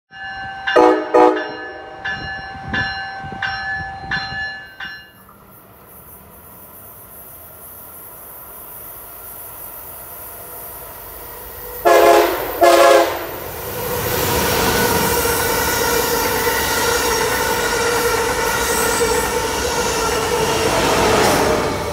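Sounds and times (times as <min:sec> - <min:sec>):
bell ringing: 0:00.1 - 0:05.2
high-speed train rushing past: 0:00.2 - 0:21.9
train horn blast: 0:00.7 - 0:02.8, 0:11.8 - 0:13.4
hiss of approaching train: 0:05.3 - 0:21.9.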